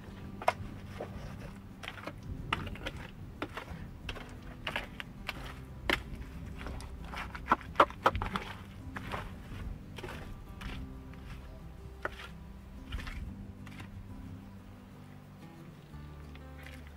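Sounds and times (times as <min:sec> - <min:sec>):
trowel scraping mortar: 0:00.0 - 0:14.0
wet mortar slaps: 0:00.4 - 0:14.0.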